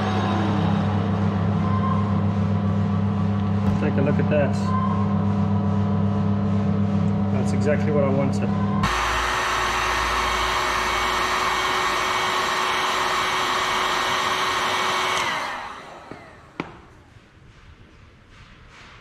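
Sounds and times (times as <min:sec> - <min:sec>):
heat gun blowing: 0:08.8 - 0:16.8.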